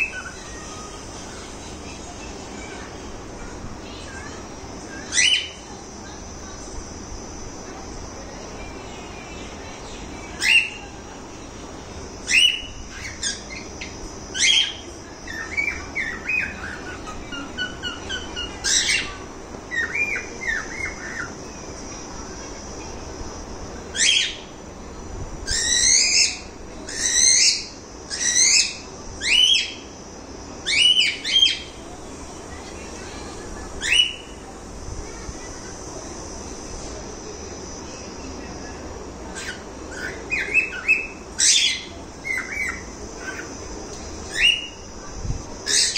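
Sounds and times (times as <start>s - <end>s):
soft chattering chirps: 0.0s - 45.9s
cockatiel calls: 12.2s - 21.3s, 39.3s - 43.6s.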